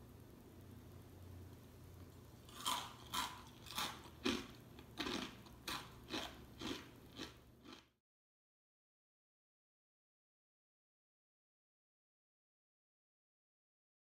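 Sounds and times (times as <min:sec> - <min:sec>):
crunchy snack being chewed: 0:02.4 - 0:08.0.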